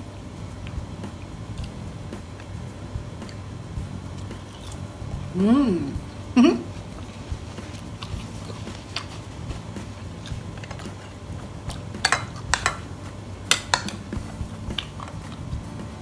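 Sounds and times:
spoon clinking in ceramic bowl: 12.0 - 12.9, 13.5 - 14.1.

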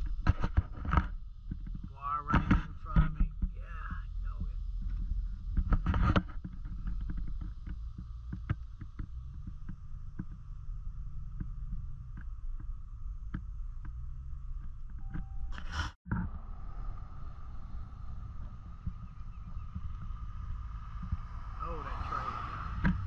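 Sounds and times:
truck engine rumble: 0.0 - 23.0
tyres rolling on wet road: 16.3 - 23.0.

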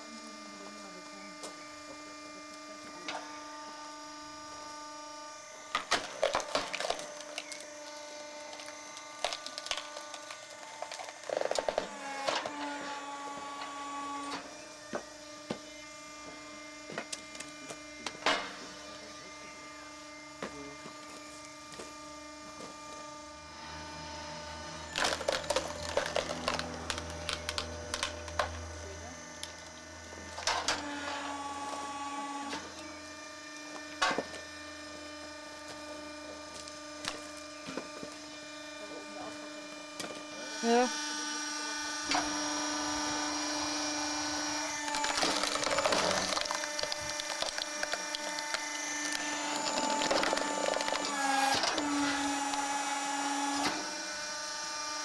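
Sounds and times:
log splitter motor humming: 0.0 - 55.0
wood cracking and splintering: 5.8 - 12.5, 24.9 - 28.5, 44.5 - 52.6
wood pieces knocking together: 44.9 - 48.8.

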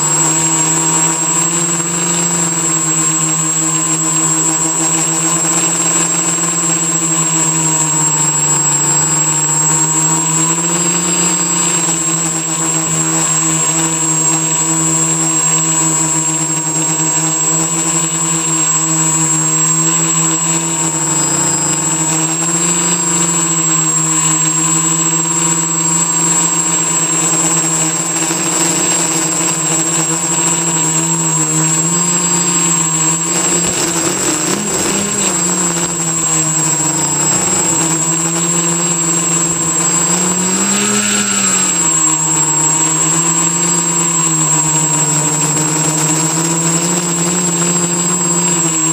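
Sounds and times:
drone motors and propellers: 0.0 - 48.9.

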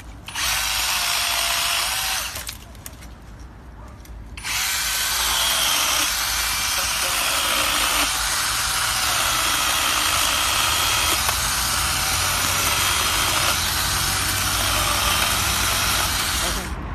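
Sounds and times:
electric chainsaw motor whine: 0.3 - 2.5, 4.4 - 16.7.

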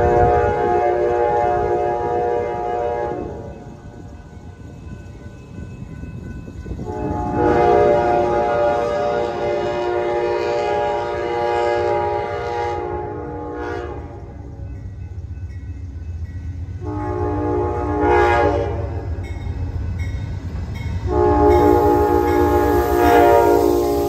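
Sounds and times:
locomotive horn blasts: 0.0 - 3.5, 6.8 - 14.4, 16.8 - 19.2, 21.1 - 24.0.

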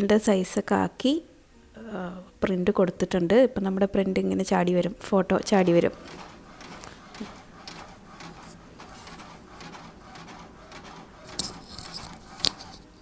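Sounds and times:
printer paper feed clacks: 5.0 - 13.0
printer carriage shuttling: 5.2 - 13.0.

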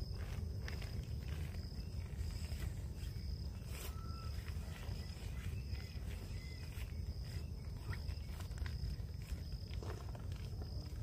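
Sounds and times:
fabric and tarp rustling: 0.0 - 11.0
insects chirping: 0.0 - 11.0.

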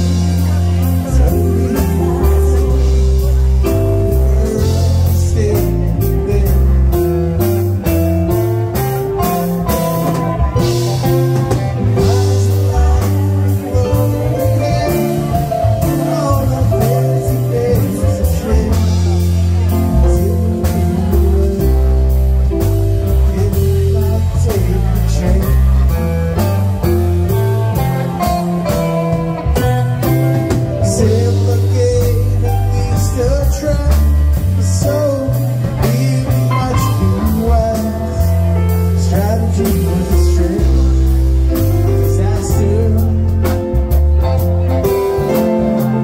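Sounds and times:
male and female voices singing: 0.0 - 6.8, 11.4 - 21.7, 29.1 - 41.2
electric guitar: 0.0 - 46.0
keyboard: 0.0 - 46.0.

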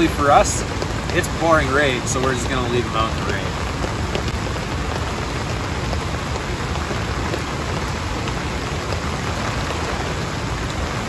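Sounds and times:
pouring rain: 0.0 - 11.0.

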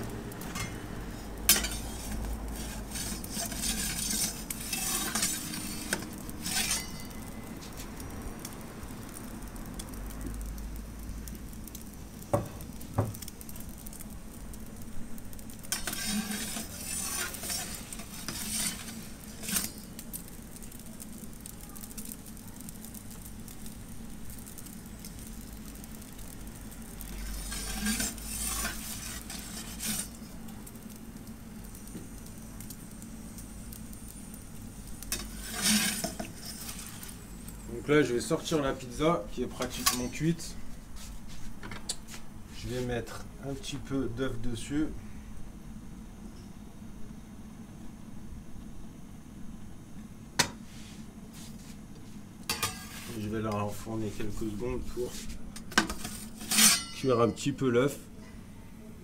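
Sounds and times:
gas burner hissing: 0.0 - 59.0
metal peel scraping and clinking: 0.4 - 7.9, 15.6 - 20.2, 26.1 - 30.4, 35.0 - 40.5, 52.5 - 53.4, 55.0 - 57.9.

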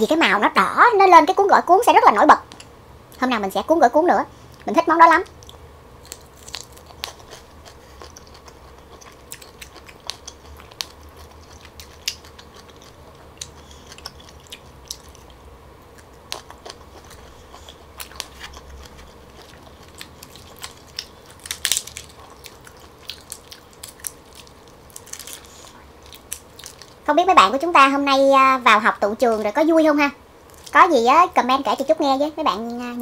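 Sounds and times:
chewing and biting prawns: 5.4 - 27.0
prawn shell cracking: 6.0 - 7.4, 19.6 - 27.0.

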